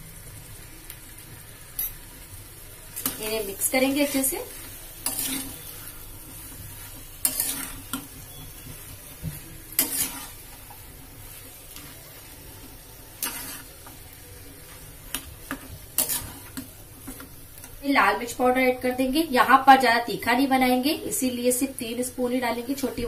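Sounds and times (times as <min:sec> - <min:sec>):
frying sizzle: 0:00.0 - 0:23.0
metal spatula scraping pan: 0:03.0 - 0:12.4, 0:13.1 - 0:14.0, 0:14.6 - 0:17.2.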